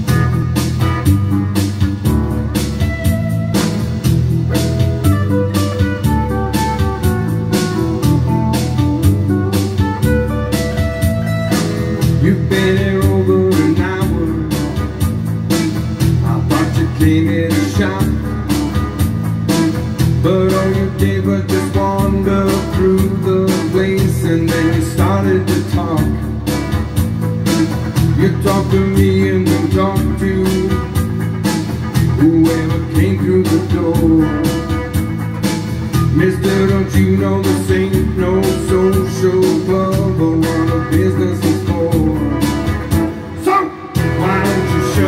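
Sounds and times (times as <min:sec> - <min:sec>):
bass guitar: 0:00.0 - 0:45.0
electric guitar: 0:00.0 - 0:45.0
steady drum beat: 0:00.0 - 0:45.0
man singing: 0:12.0 - 0:15.1, 0:16.0 - 0:18.9, 0:20.0 - 0:26.4, 0:28.0 - 0:31.3, 0:32.0 - 0:35.0, 0:36.0 - 0:45.0.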